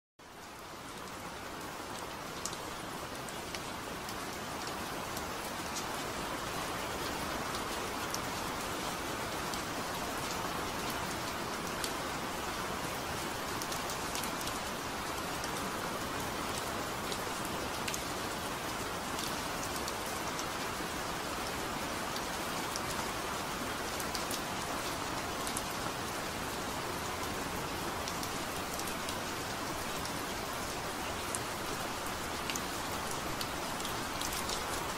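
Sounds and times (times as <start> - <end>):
rain falling: 0.2 - 34.9.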